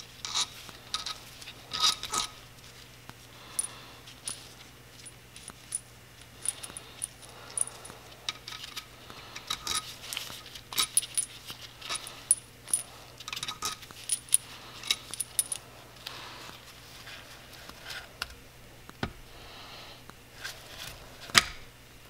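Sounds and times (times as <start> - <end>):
metal bolts clinking: 11.9 - 15.6.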